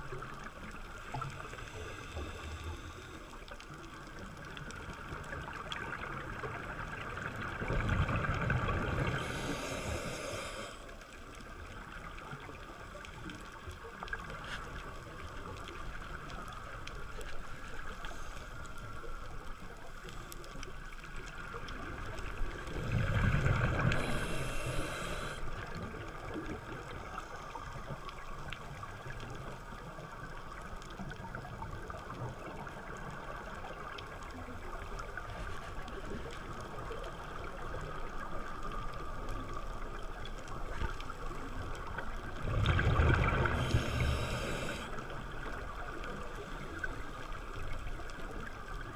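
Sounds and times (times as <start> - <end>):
steady underwater hiss: 0.0 - 48.9
diver exhaling bubbles: 42.4 - 44.9.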